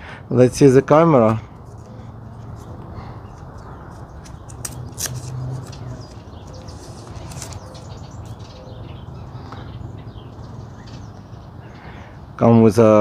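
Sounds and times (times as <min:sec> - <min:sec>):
packaging rustling and crinkling: 0:04.2 - 0:08.4.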